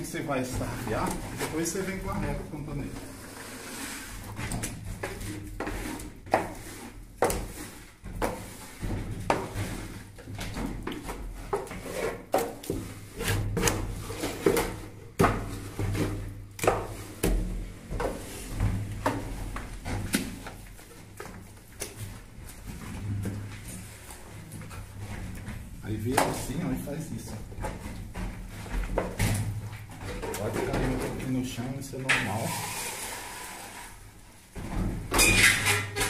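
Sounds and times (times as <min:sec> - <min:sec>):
straightedge scraping wet plaster: 0:03.0 - 0:10.0, 0:11.0 - 0:17.4, 0:32.2 - 0:34.1.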